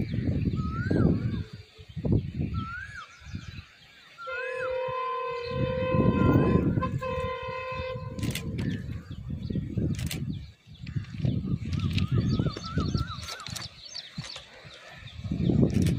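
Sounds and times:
birds chirping: 0:00.0 - 0:15.9
diesel locomotive horn blast: 0:04.2 - 0:08.8.

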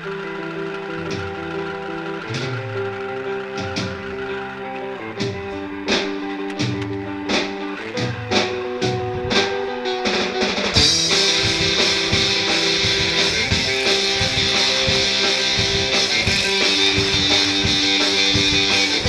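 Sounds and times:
rock music with guitar and drums: 0:00.0 - 0:19.0.

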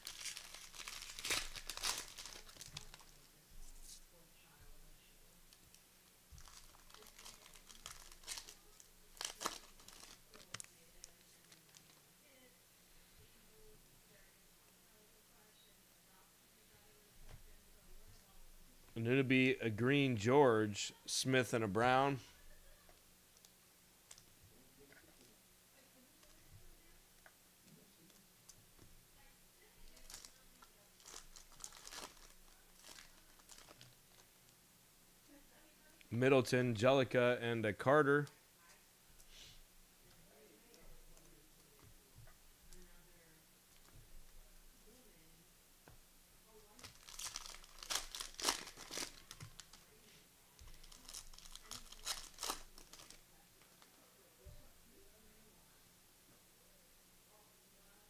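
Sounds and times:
wrappers crinkling and tearing: 0:00.0 - 0:03.3, 0:06.4 - 0:12.0, 0:29.9 - 0:34.3, 0:46.8 - 0:49.9, 0:50.6 - 0:53.2.

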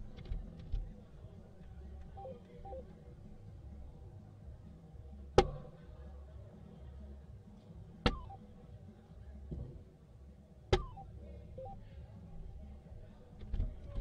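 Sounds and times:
darts striking dartboard: 0:08.1 - 0:08.3, 0:10.7 - 0:11.0.

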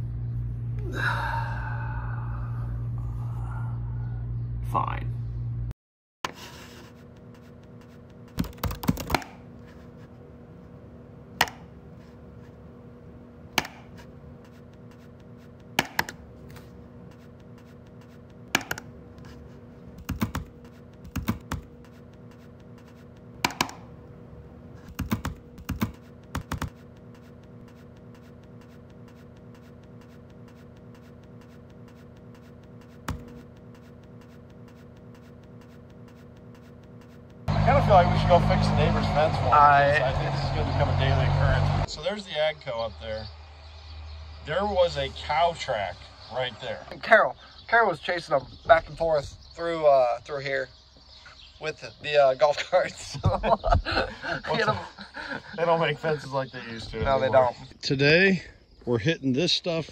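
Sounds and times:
low electrical hum: 0:00.0 - 0:05.7, 0:06.4 - 0:59.9
computer keyboard typing: 0:08.3 - 0:09.4, 0:20.0 - 0:23.8, 0:24.9 - 0:37.2.

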